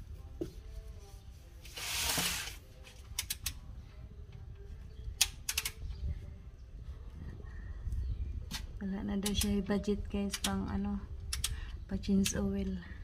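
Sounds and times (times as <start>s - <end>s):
socket ratchet clicking: 5.2s - 5.9s.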